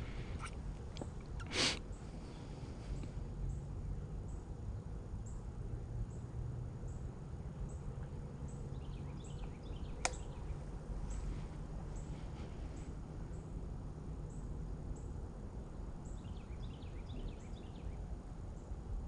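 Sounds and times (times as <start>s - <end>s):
sharp click: 10.0s - 10.3s.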